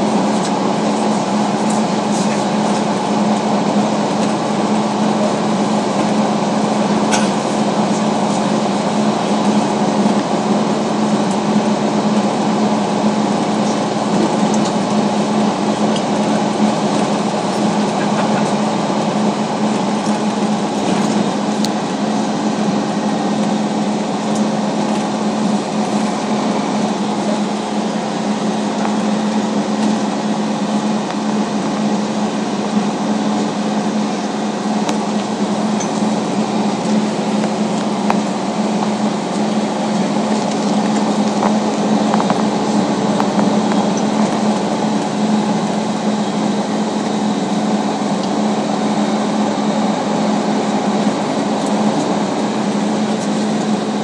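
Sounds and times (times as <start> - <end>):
bus engine drone: 0.0 - 54.0
constant low hum: 0.0 - 54.0.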